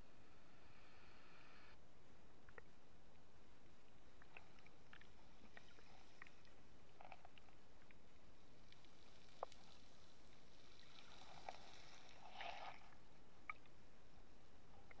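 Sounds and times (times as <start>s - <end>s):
faint underwater hiss: 0.0s - 15.0s
water swirl: 8.3s - 13.7s.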